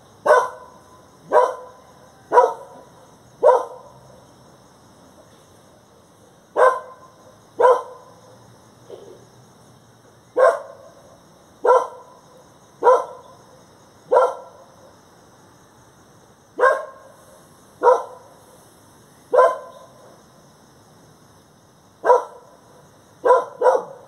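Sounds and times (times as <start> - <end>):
dog barking: 0.2 - 4.0, 6.6 - 8.1, 10.4 - 11.0, 11.6 - 12.1, 12.8 - 13.4, 14.1 - 14.7, 16.6 - 17.1, 17.8 - 18.3, 19.3 - 20.0, 22.0 - 22.5, 23.2 - 24.0.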